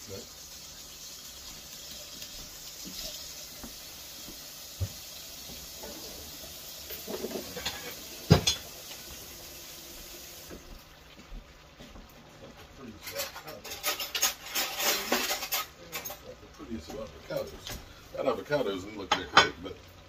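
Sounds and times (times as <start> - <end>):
stir-fry sizzling in a wok: 0.0 - 20.0
dishes and utensils knocking: 6.9 - 8.7.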